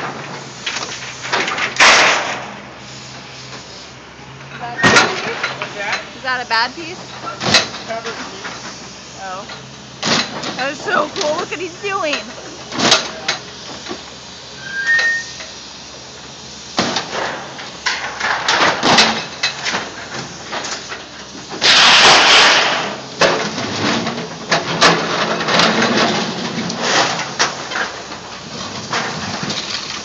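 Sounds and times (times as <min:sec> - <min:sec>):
grinding metal crush: 0:00.0 - 0:02.5, 0:16.8 - 0:30.0
sheet metal crunching and clanking: 0:21.6 - 0:24.1.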